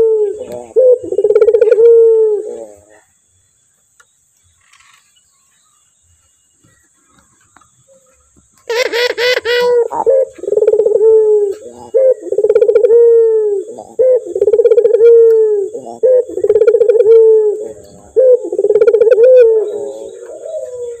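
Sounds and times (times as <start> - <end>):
dove cooing: 0.0 - 3.1, 7.9 - 21.0.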